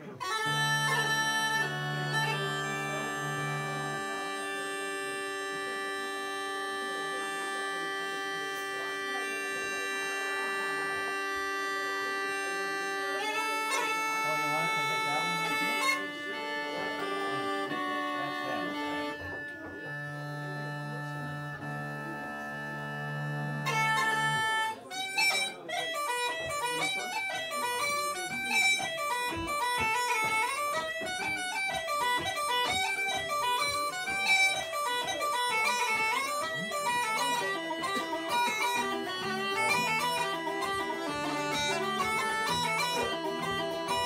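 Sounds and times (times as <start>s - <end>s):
fast dance tune on pipes: 0.0s - 44.0s
plucked string accompaniment: 0.0s - 44.0s
uilleann pipes playing: 0.0s - 44.0s.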